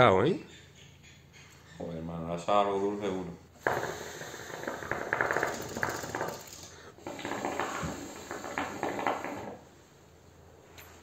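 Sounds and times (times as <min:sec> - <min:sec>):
breath through hose: 0:03.6 - 0:05.2, 0:06.6 - 0:09.5
hookah water bubbling: 0:03.6 - 0:06.4, 0:07.0 - 0:09.7.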